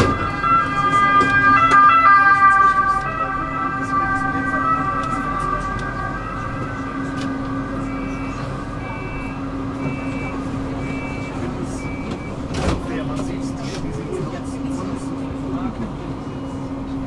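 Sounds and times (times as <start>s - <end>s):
low hum of running tram: 0.0s - 17.0s
tram wheels squealing on rails: 2.6s - 12.4s.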